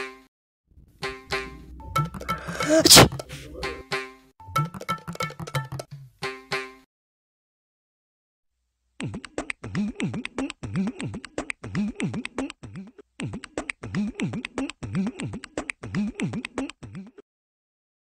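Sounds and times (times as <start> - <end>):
sliding bass notes: 0.8 - 2.6.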